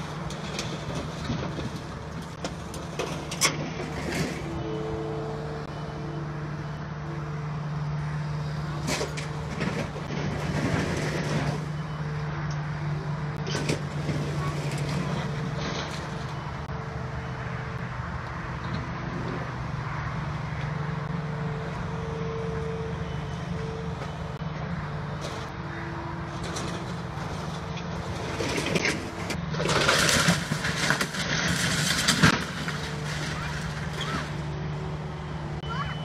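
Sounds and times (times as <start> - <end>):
diesel engine running: 0.0 - 36.0
wall crunching and crashing: 28.3 - 34.4
wavering high tone: 35.6 - 36.0.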